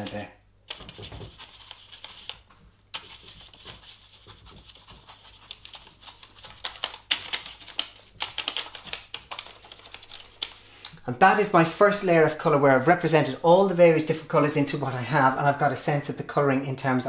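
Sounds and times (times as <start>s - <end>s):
paintbrush scratching on paper: 0.0s - 10.7s.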